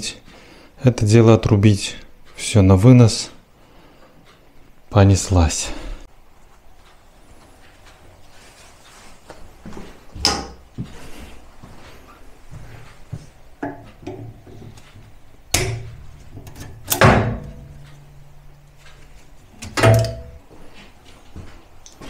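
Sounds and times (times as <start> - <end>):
metal knocks and clunks: 13.6 - 18.9, 19.5 - 20.5
loud metal bangs: 16.8 - 17.8, 19.7 - 20.4.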